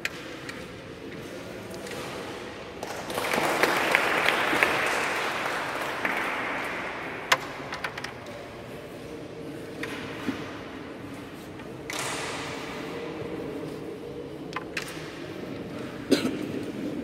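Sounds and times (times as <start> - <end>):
applause: 2.8 - 7.4.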